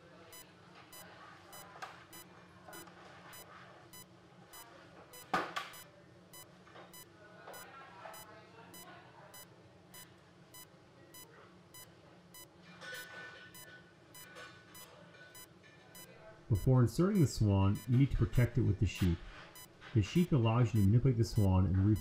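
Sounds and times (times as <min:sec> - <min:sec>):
high-pitched electronic beeping: 0:15.4 - 0:18.0, 0:20.8 - 0:22.0.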